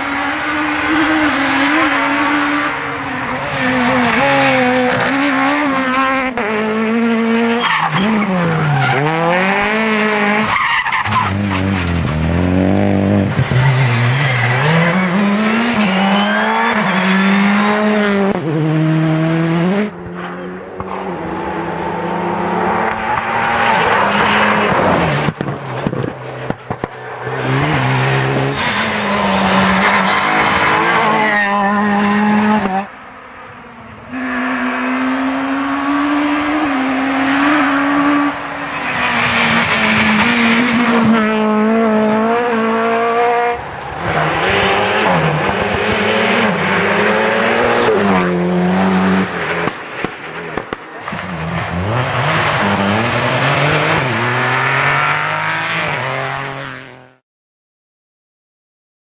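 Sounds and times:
rally car engines revving: 0:00.0 - 0:57.2.

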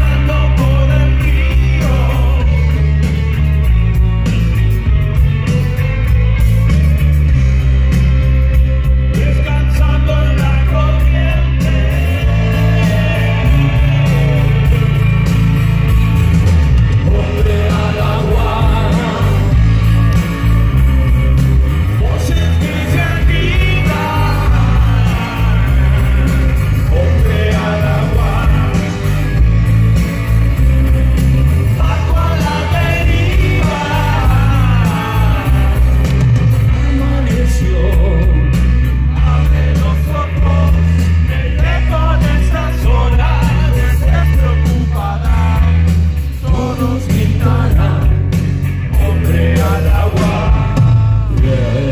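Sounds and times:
man singing: 0:00.0 - 0:03.0, 0:09.0 - 0:15.4, 0:17.0 - 0:19.8, 0:21.8 - 0:29.4, 0:31.7 - 0:51.9
rock band playing live: 0:00.0 - 0:51.9.

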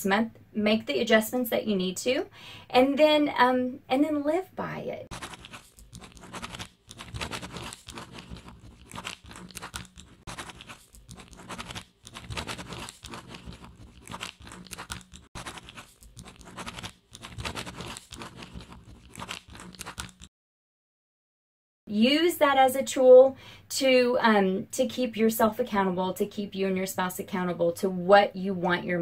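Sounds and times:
pen scratching on paper: 0:05.1 - 0:20.3.

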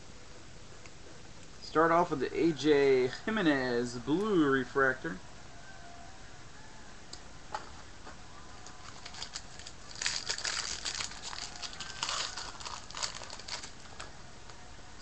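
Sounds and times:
foil wrapper crinkling and tearing: 0:08.6 - 0:14.1.

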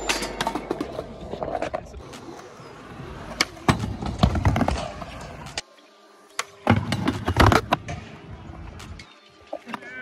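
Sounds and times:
skateboard wheels rolling: 0:00.0 - 0:10.0
skateboard hitting ramp: 0:03.3 - 0:05.5.

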